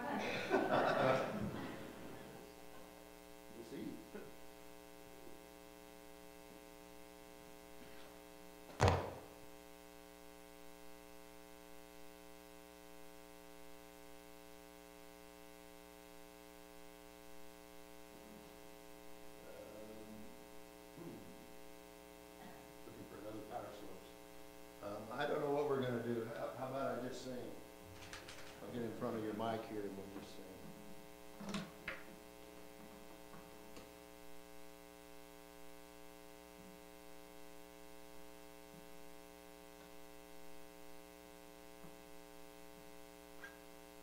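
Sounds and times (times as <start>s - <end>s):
electrical mains hum: 0.0s - 44.0s
sharp thunk: 8.8s - 9.2s.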